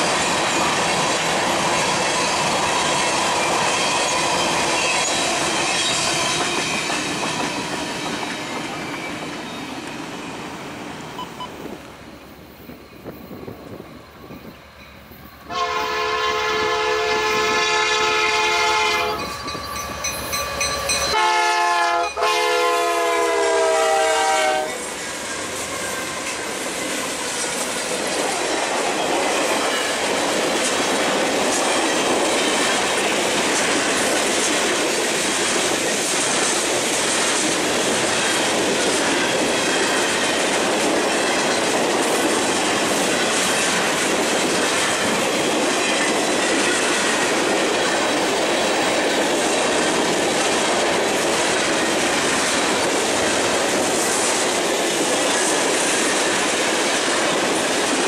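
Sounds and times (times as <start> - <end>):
locomotive air horn blasts: 15.5 - 19.2, 21.1 - 24.8.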